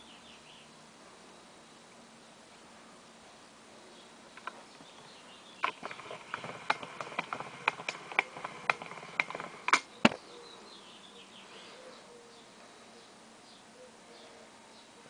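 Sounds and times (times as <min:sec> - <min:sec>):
sharp clicks: 0:04.4 - 0:04.6, 0:05.6 - 0:10.2.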